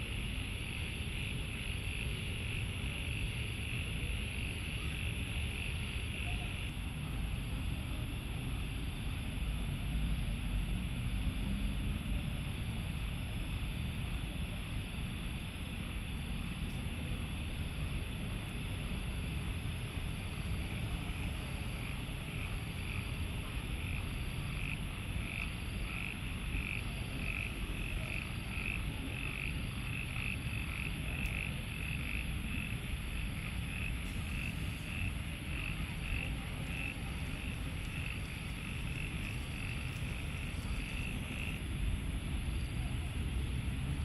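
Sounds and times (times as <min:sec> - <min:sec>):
frogs calling: 0:23.9 - 0:42.7
steady low rumble: 0:28.6 - 0:44.0
higher-pitched frog calling: 0:30.4 - 0:41.6.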